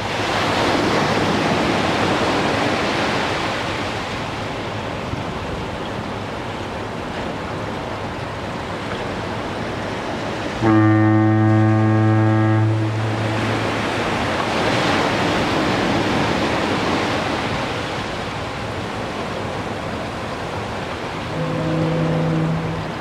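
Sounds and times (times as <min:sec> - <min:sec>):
ocean waves breaking on beach: 0:00.0 - 0:23.0
deep foghorn blast: 0:10.6 - 0:14.0, 0:21.2 - 0:23.0.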